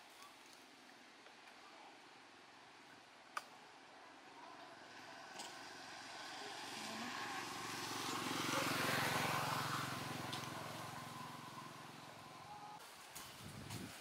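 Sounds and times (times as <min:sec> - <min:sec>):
vehicle engine approaching: 0:04.8 - 0:12.8.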